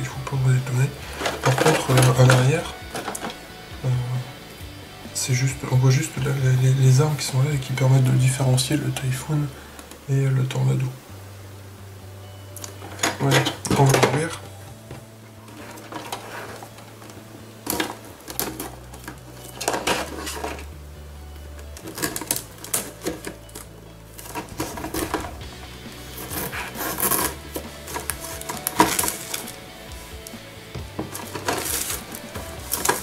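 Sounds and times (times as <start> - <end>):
plastic wrap crinkling and tearing: 0.0 - 4.5, 15.4 - 20.8, 21.5 - 33.0
background music: 0.0 - 33.0.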